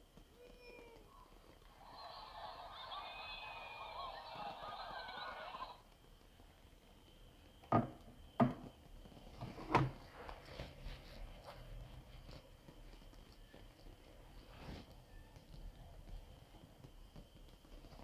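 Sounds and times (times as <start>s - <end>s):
fireworks popping and crackling: 0.0s - 9.4s.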